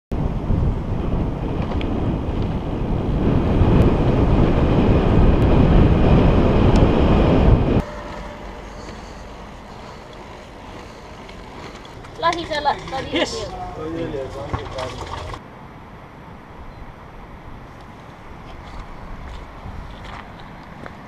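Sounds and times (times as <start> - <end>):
steady rush of wind: 0.1 - 14.5, 15.3 - 21.0
wind buffeting microphone: 0.1 - 15.4.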